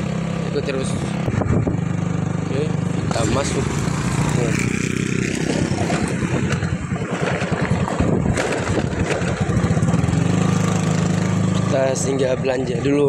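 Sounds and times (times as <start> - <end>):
small motorcycle engine running: 0.0 - 13.0.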